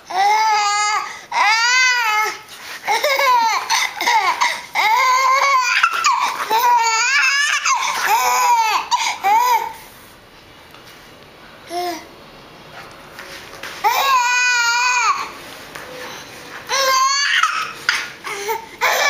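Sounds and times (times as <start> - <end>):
baby giggling: 5.2 - 9.6.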